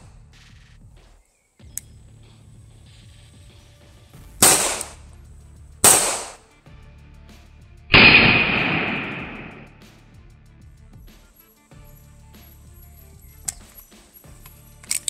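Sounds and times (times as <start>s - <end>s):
pistol shots with echo: 4.4s - 5.0s, 5.8s - 6.4s, 7.9s - 9.8s.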